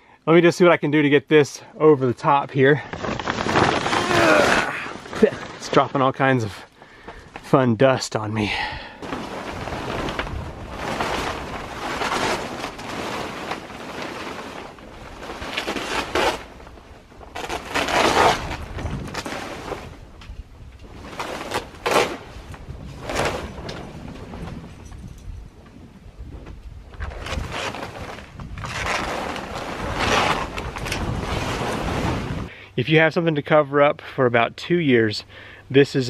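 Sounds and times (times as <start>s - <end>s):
tarp cover rustling and scraping: 2.6s - 6.3s, 9.0s - 25.6s, 26.3s - 32.5s.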